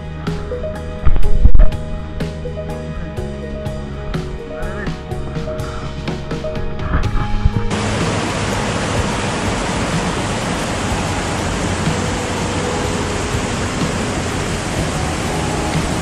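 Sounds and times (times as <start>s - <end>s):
waterfall rushing: 7.7s - 16.0s.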